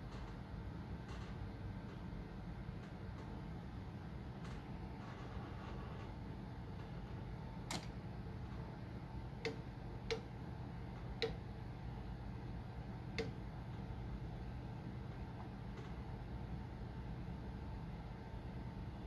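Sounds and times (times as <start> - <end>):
cooling fans humming: 0.0 - 19.0
sharp relay clicks: 7.6 - 8.0, 9.3 - 11.6, 13.0 - 14.0.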